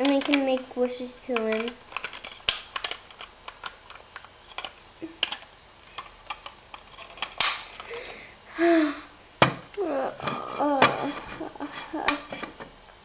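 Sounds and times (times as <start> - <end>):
plastic toys clicking on table: 0.0 - 7.6.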